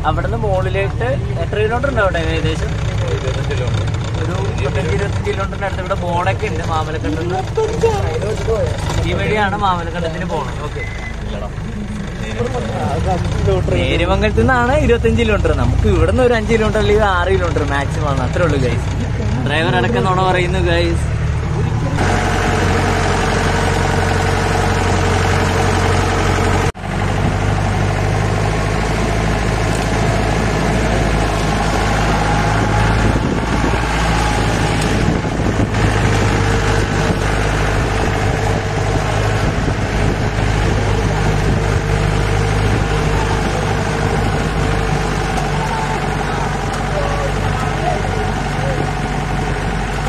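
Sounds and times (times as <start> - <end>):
car engine running: 0.0 - 50.0.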